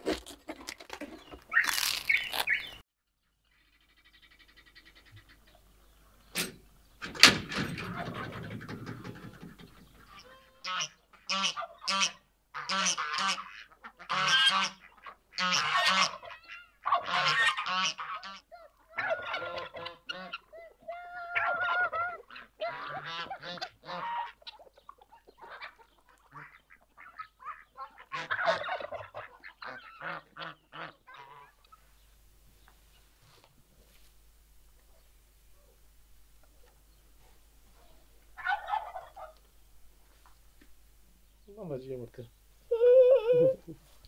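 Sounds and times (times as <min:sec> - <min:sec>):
geese honking: 0:07.8 - 0:31.9, 0:37.7 - 0:39.5.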